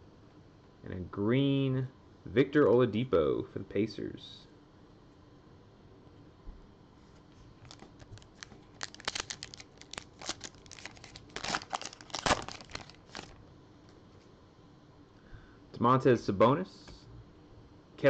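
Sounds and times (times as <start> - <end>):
card pack wrapper ripping and crinkling: 7.6 - 13.4.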